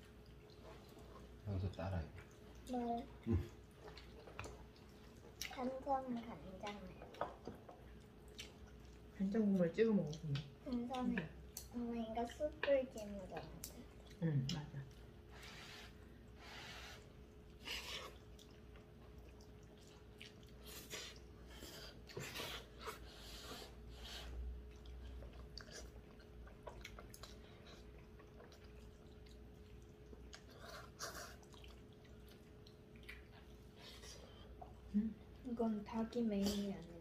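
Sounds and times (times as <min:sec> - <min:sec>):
people slurping noodles: 0:15.3 - 0:18.2.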